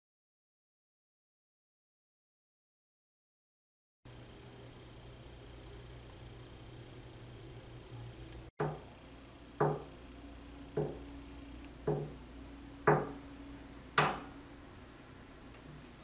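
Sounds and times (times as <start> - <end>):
pencil tapping on wooden desk: 10.8 - 11.0, 11.8 - 12.2.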